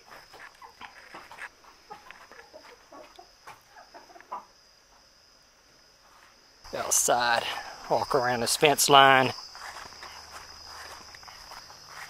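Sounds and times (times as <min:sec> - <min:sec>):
crickets chirring: 0:00.0 - 0:12.0
hens clucking softly: 0:00.3 - 0:04.6.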